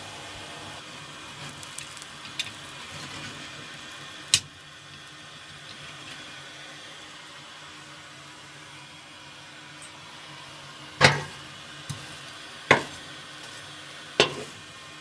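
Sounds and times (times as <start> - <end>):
fire crackling: 0.0 - 15.0
forge blower rushing air: 0.0 - 15.0.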